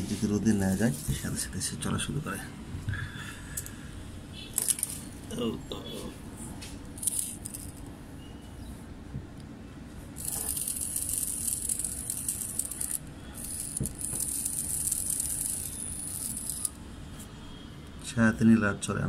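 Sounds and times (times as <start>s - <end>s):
tiny electric motor whining: 7.0s - 7.8s, 10.2s - 16.8s.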